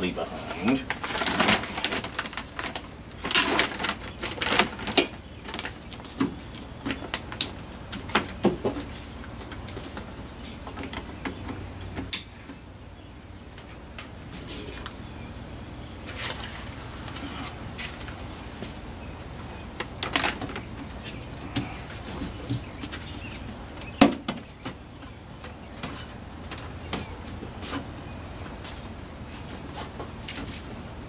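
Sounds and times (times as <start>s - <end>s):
plastic sheet crinkling: 0.3s - 9.1s, 19.8s - 23.5s.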